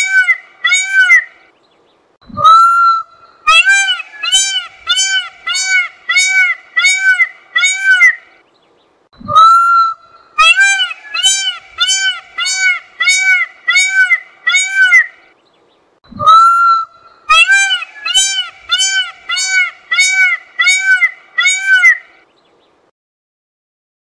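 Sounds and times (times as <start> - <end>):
peacock honking calls: 0.0 - 1.4, 2.4 - 8.3, 9.3 - 15.2, 16.2 - 22.2.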